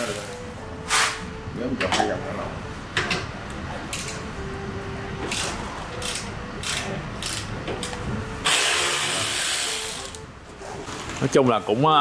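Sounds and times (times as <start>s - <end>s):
air ratchet running: 5.3s - 10.2s.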